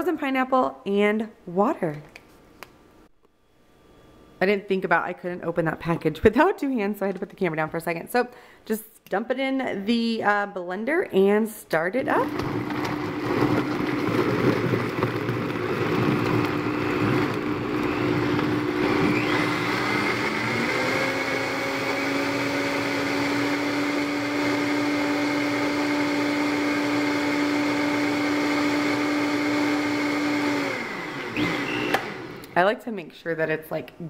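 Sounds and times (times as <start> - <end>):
blender running: 12.0 - 32.6.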